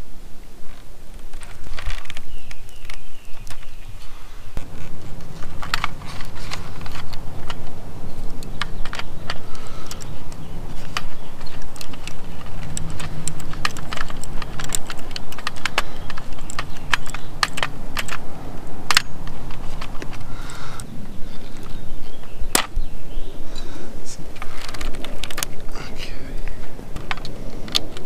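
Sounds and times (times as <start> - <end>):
steady low hum: 0.0 - 28.0
hand tools clicking: 1.2 - 22.8, 23.5 - 28.0.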